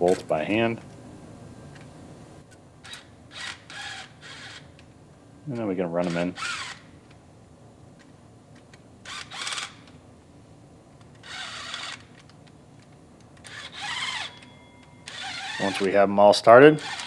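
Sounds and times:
power tool running: 15.1s - 15.8s, 16.8s - 17.0s.

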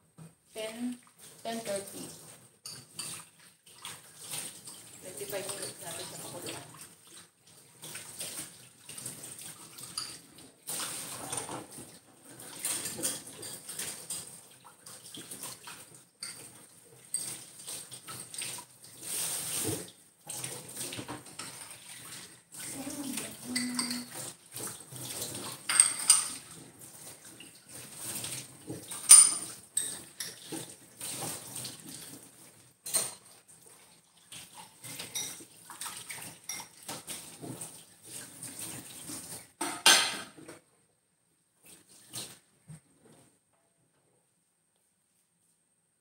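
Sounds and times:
dishes and utensils clattering: 2.6s - 3.3s, 9.2s - 14.4s, 15.0s - 31.6s, 32.8s - 33.4s, 34.8s - 37.8s, 39.6s - 40.6s.

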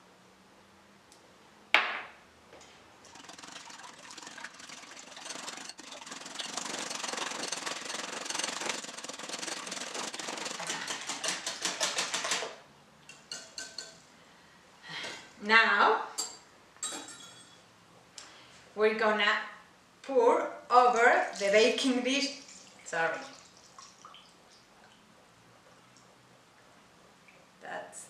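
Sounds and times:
whisk scraping in glass bowl: 3.0s - 12.5s, 13.1s - 14.0s.

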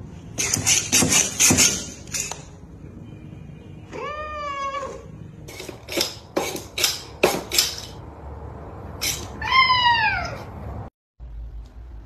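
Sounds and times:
cat meowing: 3.9s - 5.1s, 9.2s - 10.6s.

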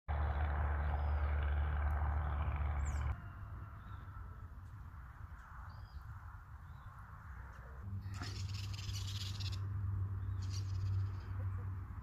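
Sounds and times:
faint high bird chirps: 8.0s - 11.6s.

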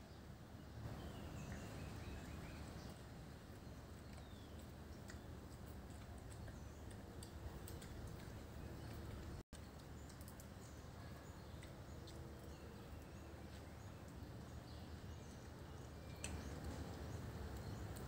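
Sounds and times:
faint outdoor background noise: 0.0s - 18.0s
small clicks: 4.0s - 10.7s, 15.4s - 18.0s.

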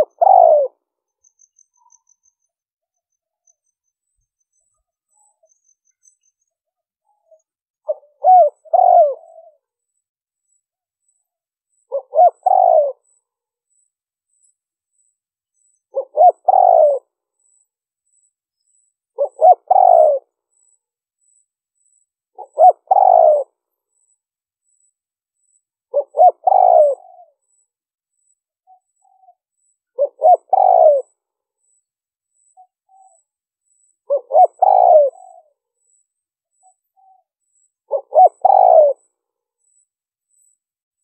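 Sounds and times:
dove cooing: 0.0s - 0.8s, 7.9s - 9.6s, 11.9s - 13.1s, 15.9s - 17.1s, 19.2s - 20.3s, 22.4s - 23.6s, 25.9s - 27.4s, 30.0s - 31.1s, 34.1s - 35.6s, 37.9s - 39.1s.

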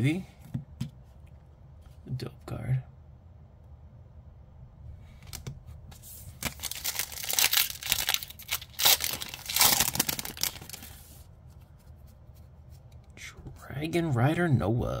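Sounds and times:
foil pack being torn open: 6.4s - 10.9s.

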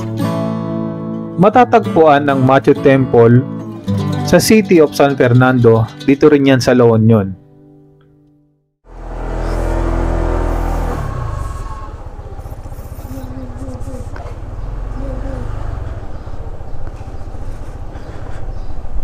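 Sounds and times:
scooter engine running: 8.9s - 18.6s.

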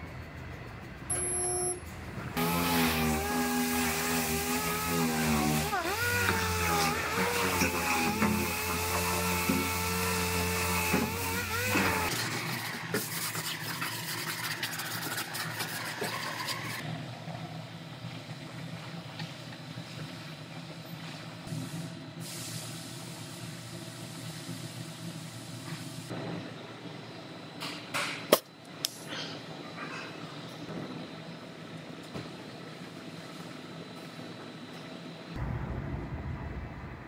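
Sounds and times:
disc sander on sheet metal: 2.4s - 16.8s
low hum: 35.4s - 37.0s.

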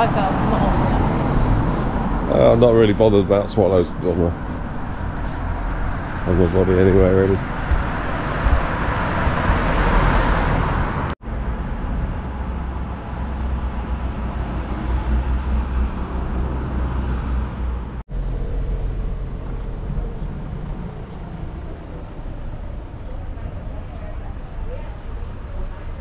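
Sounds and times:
vehicle passing loudly: 0.0s - 23.9s
low rumble of traffic: 0.0s - 26.0s.

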